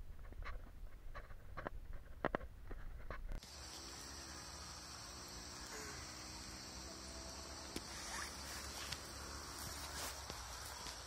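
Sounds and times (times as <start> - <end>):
crickets trilling: 3.4 - 11.0.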